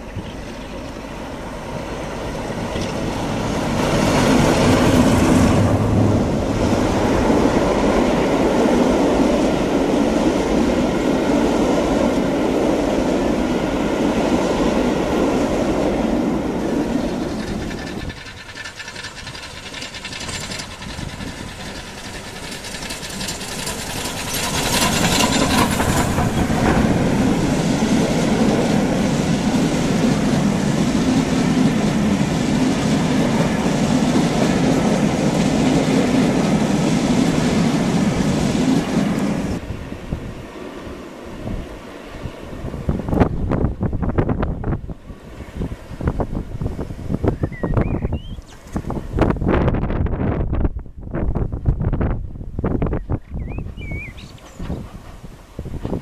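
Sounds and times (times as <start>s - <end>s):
wheels clattering on rails: 0.0s - 8.6s, 16.4s - 39.6s, 52.8s - 56.0s
steam locomotive passing: 0.0s - 56.0s
train coaches rolling by: 0.0s - 56.0s.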